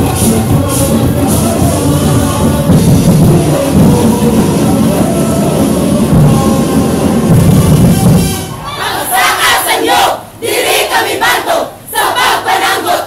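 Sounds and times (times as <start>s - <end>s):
loud music with heavy drums: 0.0s - 8.6s.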